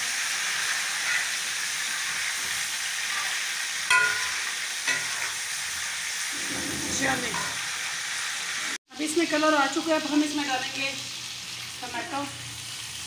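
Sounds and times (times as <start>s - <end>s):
meat sizzling in a pan: 0.0s - 13.0s
metal spatula knocking pan: 3.9s - 5.3s.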